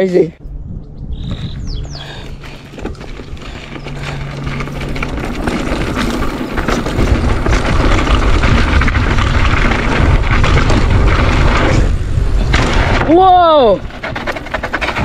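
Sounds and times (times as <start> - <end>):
wind rushing over microphone: 0.4 - 15.0
bike tyres rolling on gravel: 1.2 - 15.0.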